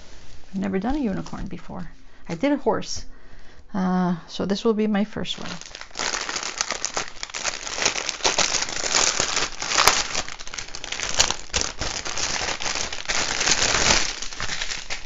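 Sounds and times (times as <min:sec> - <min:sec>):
plastic packaging crinkling: 0:05.4 - 0:15.0.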